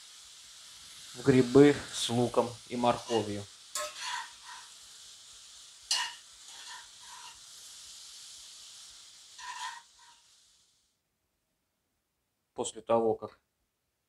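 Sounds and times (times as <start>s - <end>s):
vegetables sizzling in a frying pan: 0.0s - 11.0s
metal spoon scraping a pan: 2.8s - 4.8s, 5.9s - 7.5s, 9.3s - 10.3s.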